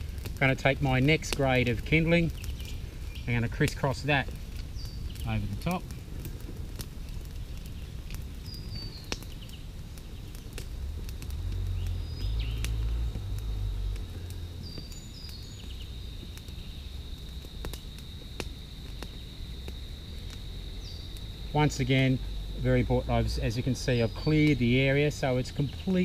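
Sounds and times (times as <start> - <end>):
campfire crackling and popping: 0.0 - 26.0
high insect trill: 0.0 - 26.0
birds chirping: 0.6 - 26.0
low rumble: 10.6 - 17.0.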